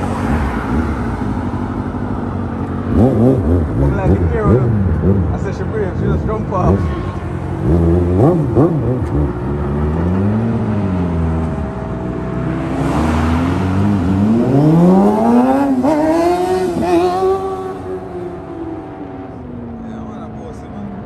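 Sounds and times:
motorcycle engine revving: 0:00.0 - 0:20.8.

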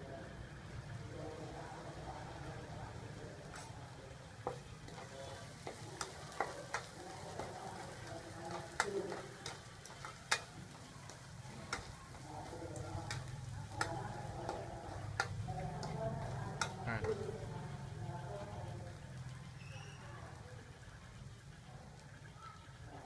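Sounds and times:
frying sizzle: 0:00.0 - 0:23.0
metal spatula scraping wok: 0:04.5 - 0:17.5.

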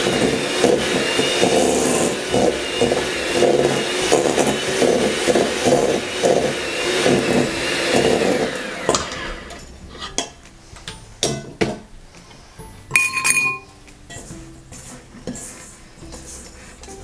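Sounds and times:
electric hand mixer whining: 0:00.0 - 0:10.0
mixer knocking and clinking: 0:00.0 - 0:10.4, 0:12.9 - 0:14.3
ringing metal clink: 0:12.9 - 0:13.7.

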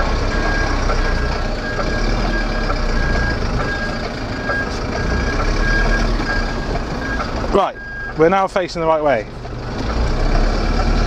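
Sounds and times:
truck reversing alarm beeping: 0:00.0 - 0:08.8
diesel lorry engine running: 0:00.0 - 0:11.0.

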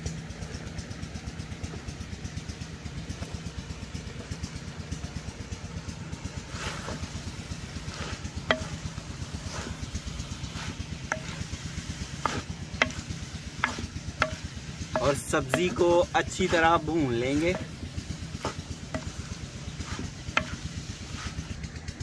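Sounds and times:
engine running with low thudding: 0:00.0 - 0:22.0
wooden spoon scraping clay pot: 0:06.2 - 0:21.7.

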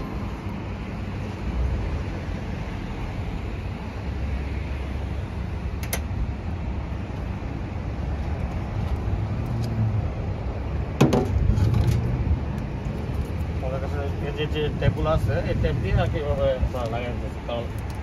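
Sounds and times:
low rumble of road traffic: 0:00.0 - 0:18.0
crackling of tape and cables: 0:17.6 - 0:18.0.

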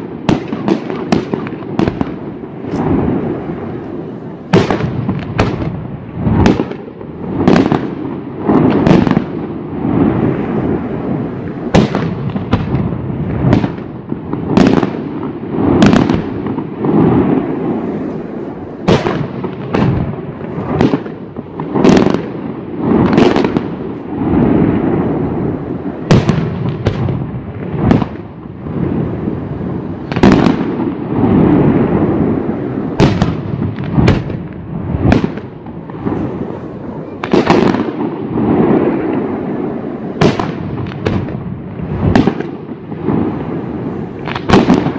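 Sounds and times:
firework shells bursting: 0:00.0 - 0:09.4.

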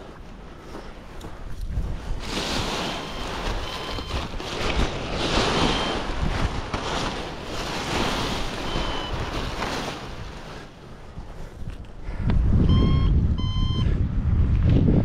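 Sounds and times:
wind buffeting the microphone: 0:00.0 - 0:15.0
faint electronic beeps: 0:02.8 - 0:04.3, 0:08.6 - 0:09.3, 0:12.6 - 0:13.9.

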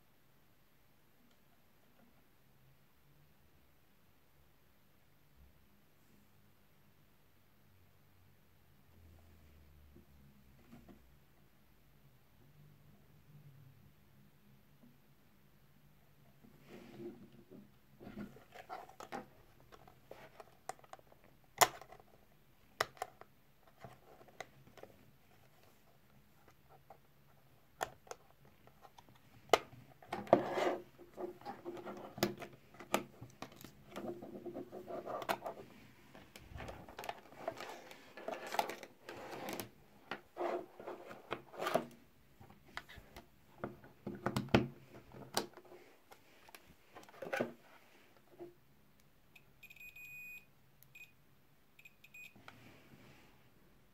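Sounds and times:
rustling of handling: 0:22.8 - 0:48.6.

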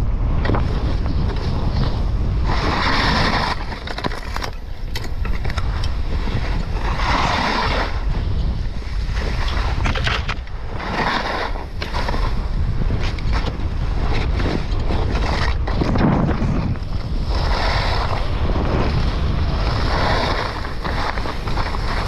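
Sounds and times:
wind buffeting microphone: 0:00.0 - 0:22.0
skis hissing on snow: 0:17.2 - 0:22.0.

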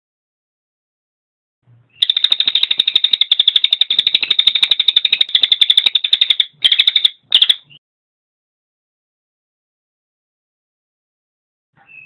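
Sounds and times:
jay rattling call: 0:02.0 - 0:07.6.

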